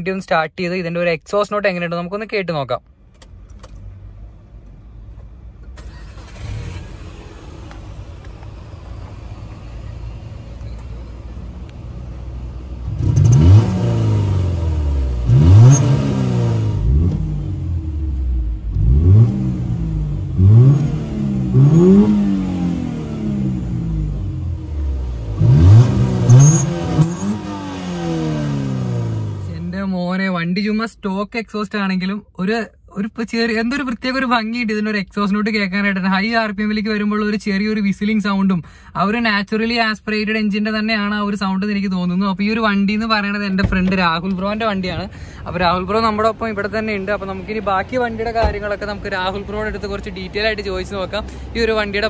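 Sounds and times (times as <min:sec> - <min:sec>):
car engine idling and revving: 0:02.8 - 0:52.0
engine whistle at high revs: 0:25.4 - 0:27.8.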